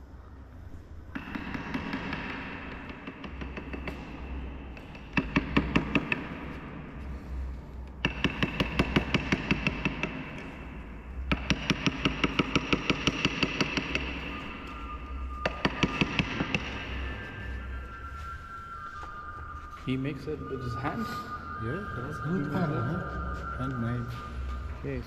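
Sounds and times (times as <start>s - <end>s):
chisel tapped with wooden mallet: 1.2s - 4.2s, 8.0s - 10.5s, 11.3s - 14.3s, 15.4s - 16.8s.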